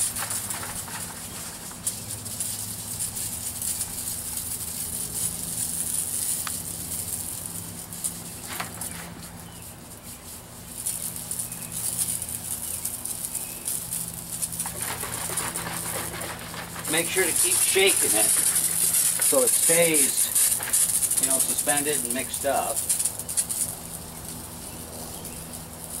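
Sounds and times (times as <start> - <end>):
sprayer nozzle hissing: 10.7 - 24.7.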